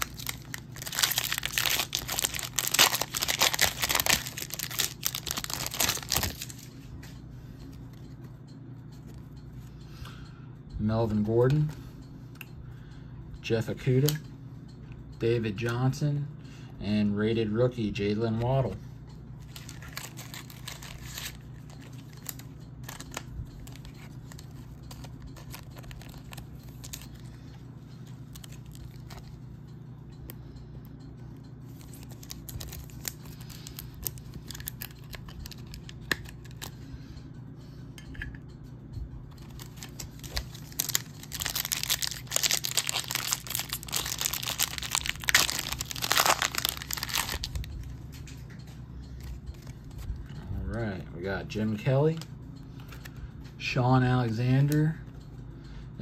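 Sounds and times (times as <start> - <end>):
foil wrapper tearing and crinkling: 0.0 - 6.7, 19.5 - 27.0, 31.9 - 36.7, 39.5 - 47.6
steady low hum: 0.0 - 56.0.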